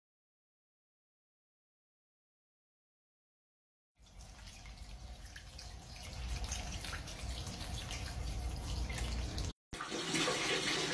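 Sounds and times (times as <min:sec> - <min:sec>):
water trickling on tiled floor: 0:04.0 - 0:10.4.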